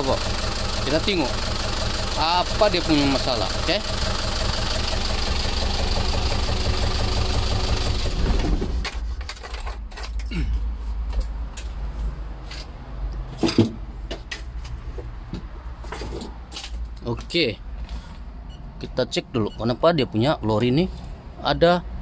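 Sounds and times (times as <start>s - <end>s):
diesel engine knocking: 0.0s - 8.8s.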